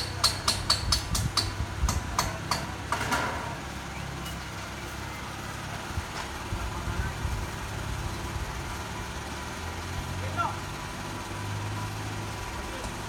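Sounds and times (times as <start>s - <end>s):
hammer blows on metal: 0.0s - 3.4s.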